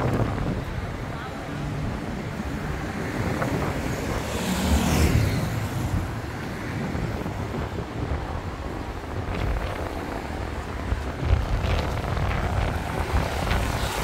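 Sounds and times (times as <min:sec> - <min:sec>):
low rumble of engines: 0:00.0 - 0:14.0
car tyres hissing on wet road: 0:11.8 - 0:14.0.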